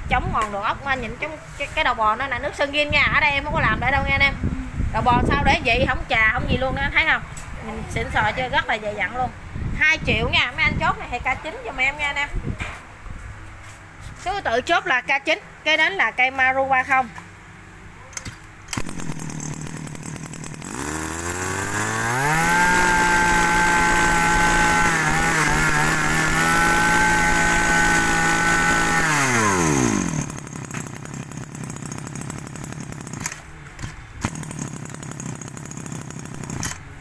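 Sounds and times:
brush-cutter engine revving: 18.7 - 37.0.

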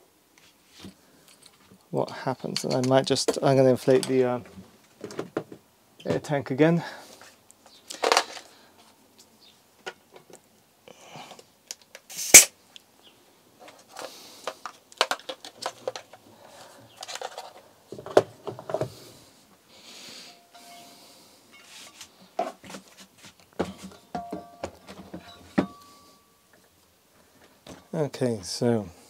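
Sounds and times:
short hisses: 12.1 - 12.5.

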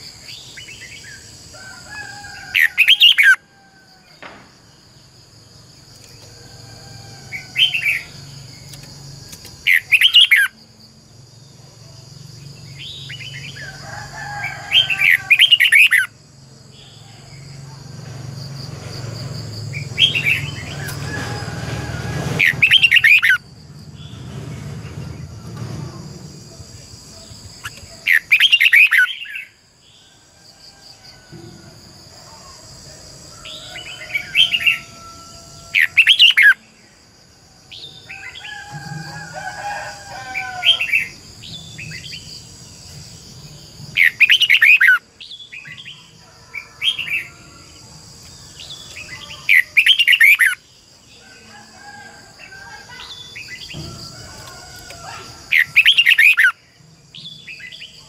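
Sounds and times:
bird warbling song: 7.4 - 10.6, 19.7 - 21.1, 22.4 - 23.4, 27.6 - 29.6, 43.9 - 46.1, 48.2 - 50.6, 55.5 - 56.6.

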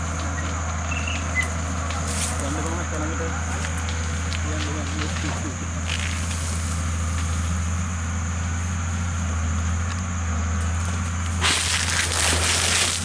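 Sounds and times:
steady low hum: 0.0 - 13.0
branches snapping: 1.0 - 2.7, 3.5 - 7.6, 10.6 - 13.0.

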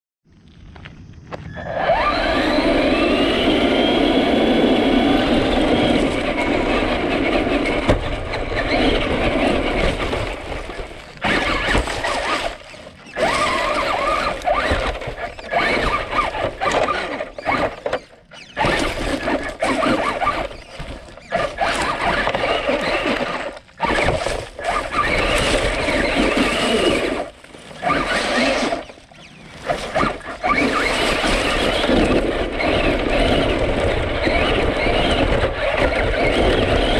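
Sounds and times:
toy car electric motor whining: 1.3 - 36.9
chassis rattling: 2.2 - 36.9.

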